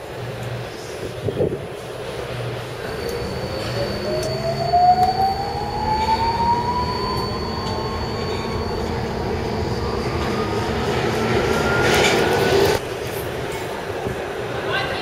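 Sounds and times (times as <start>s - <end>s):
train wheels rumbling: 0.0s - 15.0s
electric motor whine rising: 2.8s - 12.8s.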